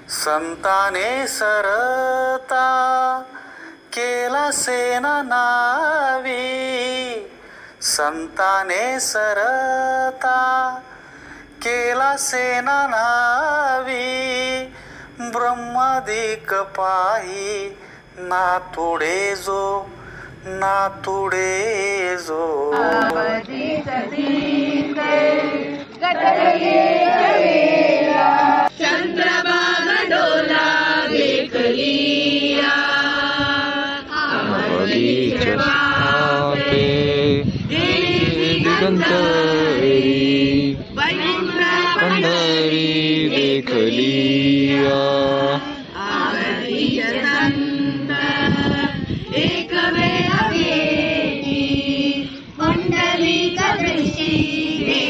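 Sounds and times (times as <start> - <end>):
group chanting a devotional song: 0.0 - 55.0.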